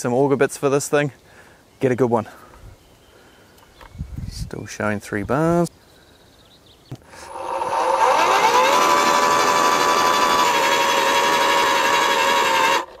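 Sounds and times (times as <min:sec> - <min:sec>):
electric motor whining: 0:07.1 - 0:13.0.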